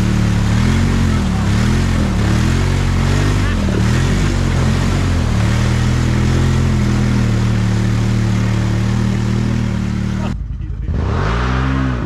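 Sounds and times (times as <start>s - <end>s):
atv engine running loud: 0.0s - 12.0s.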